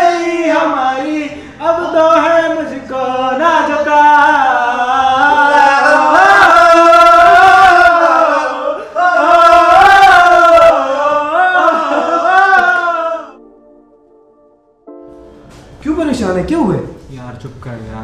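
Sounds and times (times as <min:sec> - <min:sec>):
man singing unaccompanied: 0:00.0 - 0:13.4.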